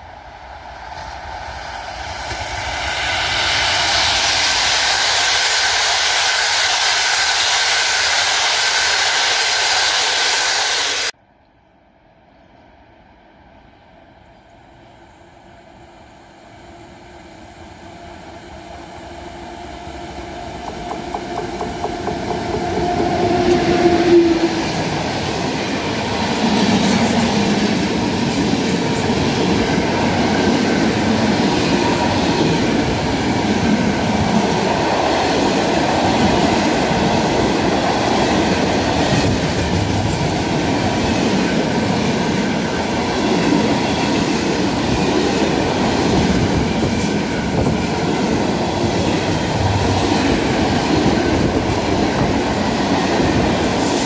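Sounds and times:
locomotive passing: 17.0 - 54.0
train wheels clacking on rails: 19.8 - 54.0.

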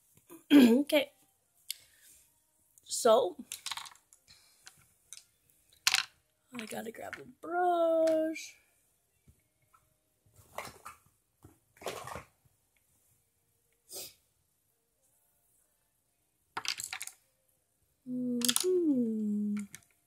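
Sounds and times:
person humming: 18.1 - 19.8.

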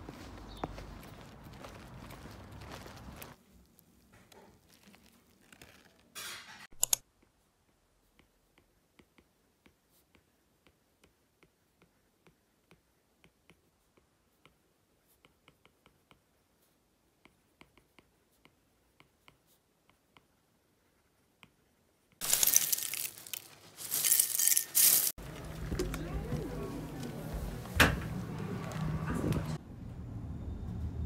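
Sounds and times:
sharp clicks: 6.7 - 7.0.

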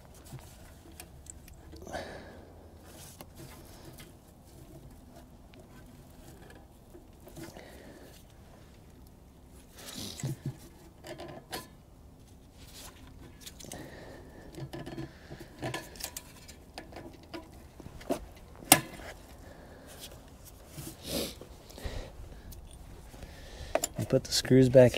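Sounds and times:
small metallic clicks and knocks: 10.2 - 13.9, 14.5 - 19.4, 23.7 - 24.2
rustling gloves: 12.2 - 23.7.

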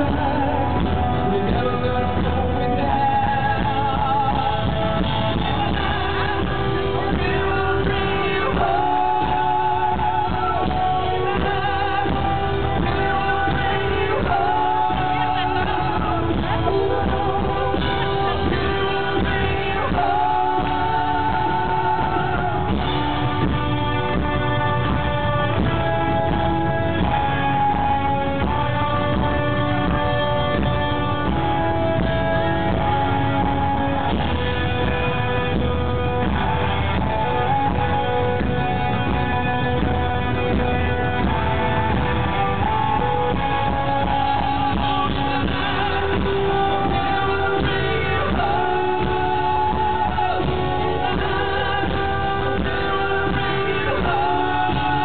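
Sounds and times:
man singing: 0.0 - 55.0
rock band playing: 0.0 - 55.0.

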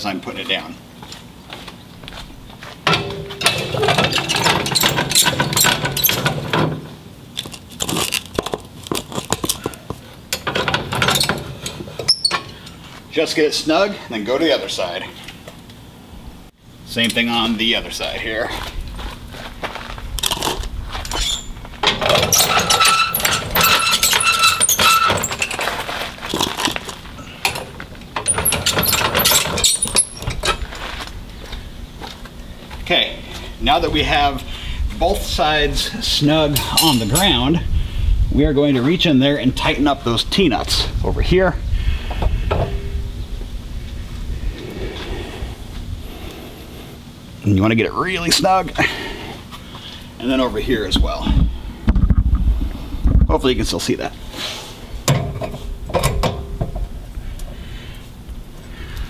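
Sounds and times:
metal jack clinking and squealing: 2.9 - 8.3, 10.3 - 12.8, 20.2 - 30.8, 36.5 - 37.4.

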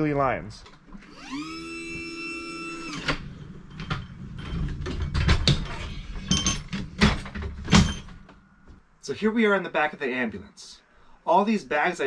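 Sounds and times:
electric motor whining: 1.0 - 3.2
gurney rolling and rattling: 3.7 - 8.3.

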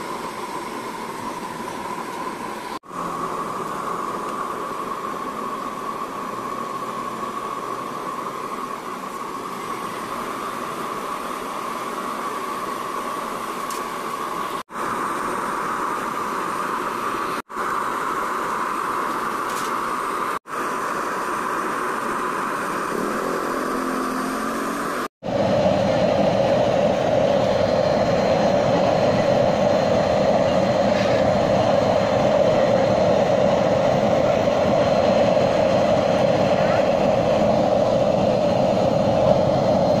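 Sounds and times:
stove burner flame rushing: 0.0 - 40.0.

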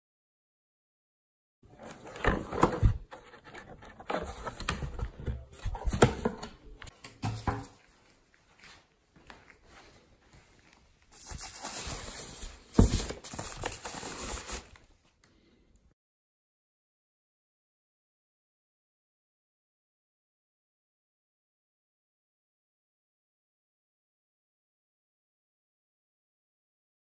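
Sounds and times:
plastic packaging crinkling: 11.2 - 14.9.

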